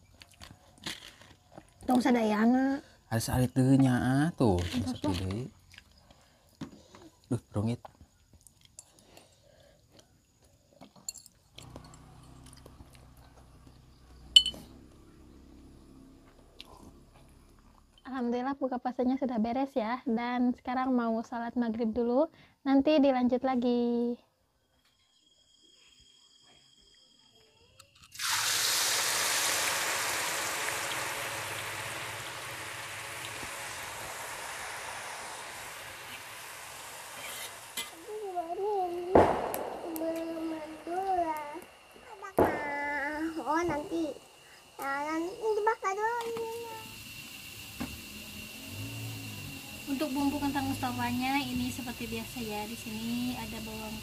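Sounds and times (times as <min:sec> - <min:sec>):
low steady hum: 0:11.1 - 0:18.3
sharp clink of dish or glass: 0:14.4 - 0:14.7
food sizzling in hot oil: 0:28.0 - 0:54.0.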